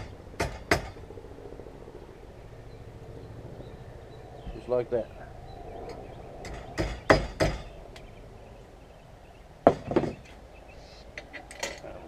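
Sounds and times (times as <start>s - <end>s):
tools clanking on metal: 11.2s - 12.0s.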